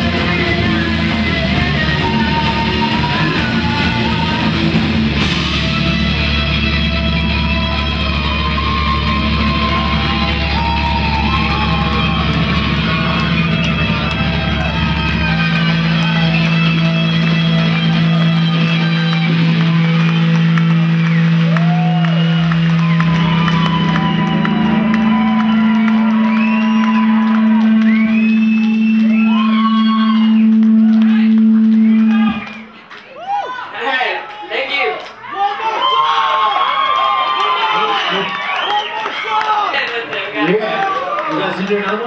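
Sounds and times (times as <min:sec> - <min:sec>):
live rock band: 0:00.0 - 0:32.8
crowd whooping and cheering: 0:00.0 - 0:42.0.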